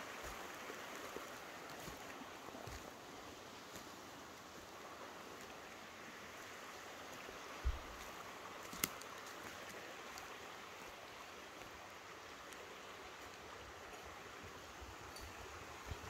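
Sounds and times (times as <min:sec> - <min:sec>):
creek rushing: 0:00.0 - 0:16.0.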